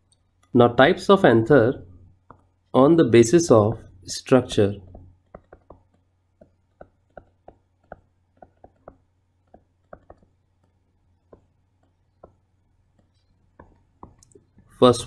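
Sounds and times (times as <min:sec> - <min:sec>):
stylus clicking on a tablet: 0:04.8 - 0:14.5.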